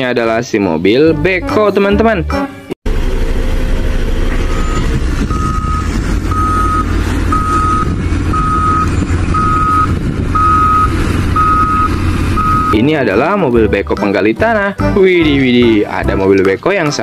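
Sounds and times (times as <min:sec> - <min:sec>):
low engine rumble: 0:02.9 - 0:13.9
truck reversing alarm beeping: 0:03.3 - 0:12.9.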